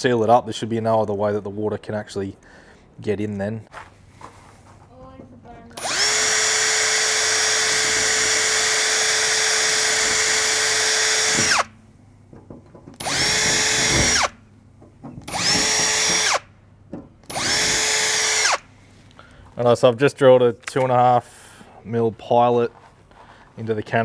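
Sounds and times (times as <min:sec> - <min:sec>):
cordless drill boring: 0:05.8 - 0:11.7, 0:13.0 - 0:14.4, 0:15.3 - 0:16.5, 0:17.3 - 0:18.7.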